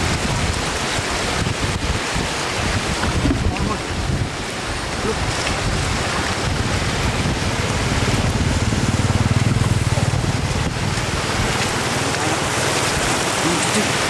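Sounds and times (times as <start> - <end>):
floodwater rushing over road: 0.0 - 14.0
low fluttering rumble: 5.7 - 12.2.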